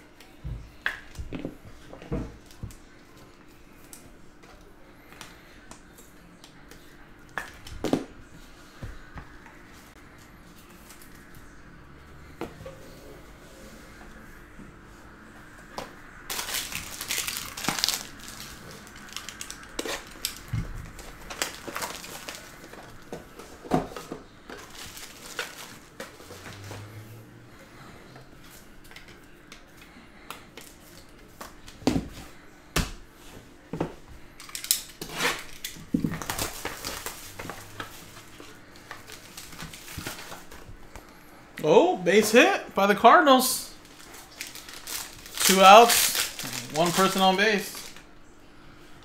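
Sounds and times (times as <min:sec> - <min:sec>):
plastic wrap crinkling and tearing: 0:16.3 - 0:23.1, 0:24.5 - 0:26.9, 0:34.4 - 0:40.6, 0:43.8 - 0:48.1.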